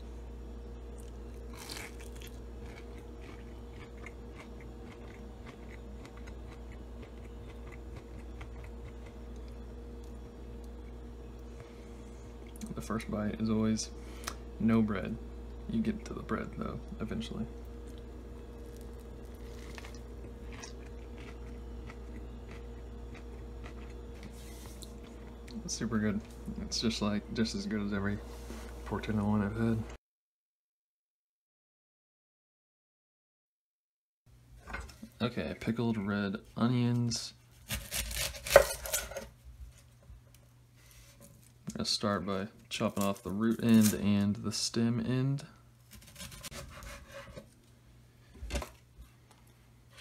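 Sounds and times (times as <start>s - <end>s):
crunchy chewing: 0.9s - 11.6s, 17.7s - 25.6s
crunchy bite into food: 1.0s - 9.2s.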